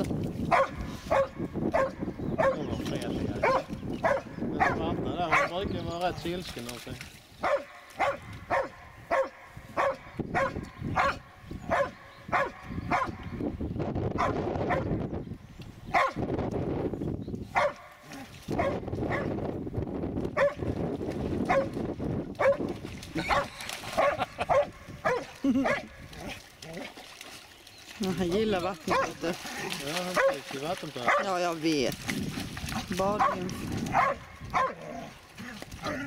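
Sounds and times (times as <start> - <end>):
dog barking: 0.5 - 2.6, 3.4 - 5.5, 7.4 - 13.2, 14.2 - 14.9, 15.9 - 16.2, 17.6 - 17.9, 18.6 - 19.3, 20.4 - 20.6, 21.5 - 21.7, 22.4 - 25.9, 28.9 - 29.2, 30.2 - 30.4, 31.0 - 31.3, 33.2 - 34.8.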